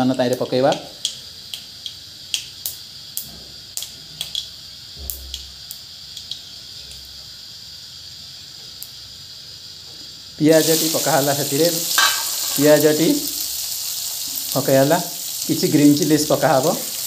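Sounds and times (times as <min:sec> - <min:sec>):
faint steady hiss: 0:00.0 - 0:17.0
mustard seeds popping in oil: 0:00.3 - 0:07.1, 0:10.6 - 0:17.0.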